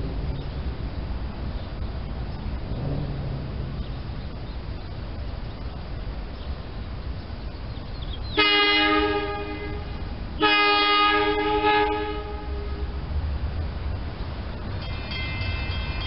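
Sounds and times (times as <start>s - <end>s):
train horn blasts: 8.4s - 13.1s.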